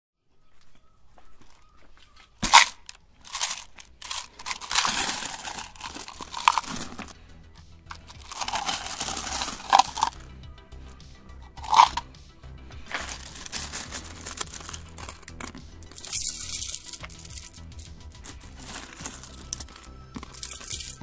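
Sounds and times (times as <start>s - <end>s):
background music: 0.4s - 21.0s
coins clinking and sliding: 2.4s - 7.2s, 7.9s - 10.2s, 11.5s - 12.1s, 12.8s - 21.0s.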